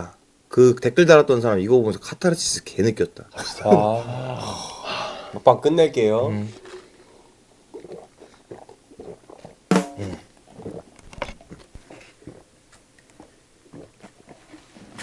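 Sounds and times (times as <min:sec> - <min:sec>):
throaty gulp: 0:07.7 - 0:11.0.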